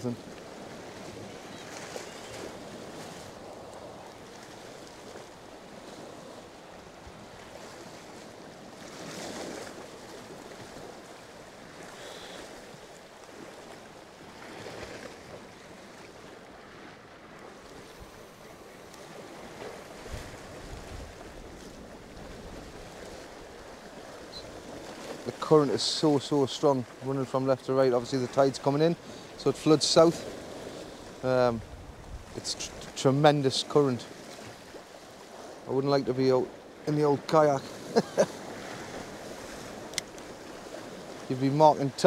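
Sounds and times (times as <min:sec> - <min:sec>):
wind rumbling on microphone: 0:00.0 - 0:25.4, 0:30.2 - 0:33.0
sea surf washing against rocks: 0:00.0 - 0:42.0.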